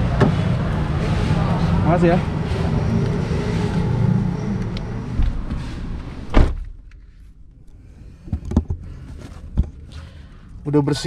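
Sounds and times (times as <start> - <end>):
car door shutting thud: 6.3 - 6.8.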